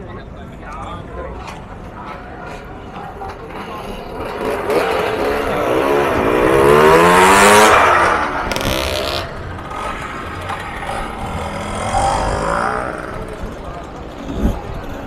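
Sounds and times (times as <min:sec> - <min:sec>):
moped engine accelerating past: 0:04.2 - 0:14.7.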